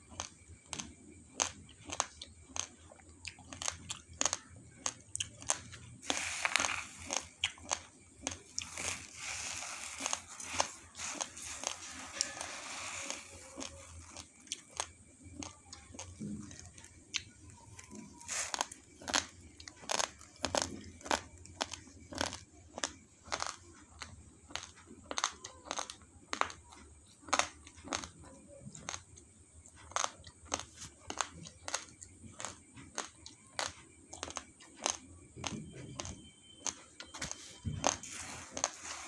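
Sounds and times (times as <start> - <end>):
raw rice being crunched: 5.4 - 15.5, 17.8 - 23.6, 37.2 - 39.0
dry rustling of grains: 6.0 - 7.4, 8.4 - 14.3, 17.8 - 18.7, 37.4 - 39.0.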